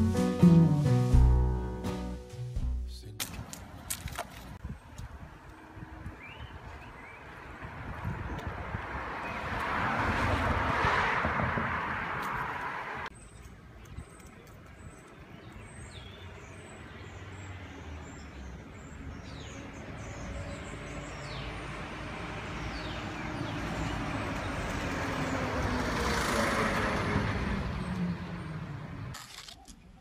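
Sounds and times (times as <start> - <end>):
passing motor vehicle: 5.2 - 13.1, 16.1 - 29.2.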